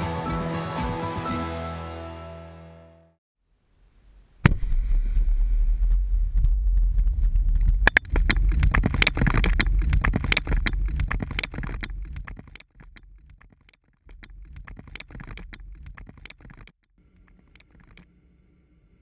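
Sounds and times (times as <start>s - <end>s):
low rumble of blast: 4.3s - 11.1s.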